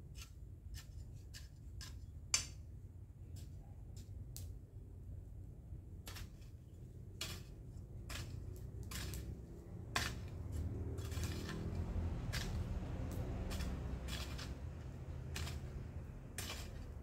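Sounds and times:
garden tool scraping dry soil: 0.0 - 2.6, 6.0 - 17.0.

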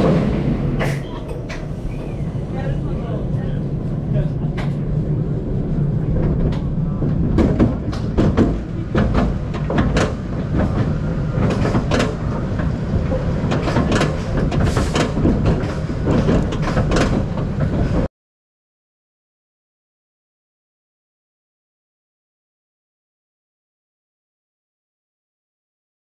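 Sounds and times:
roller coaster wheel rumble: 0.0 - 18.1
track clicks and clunks: 6.2 - 18.0.

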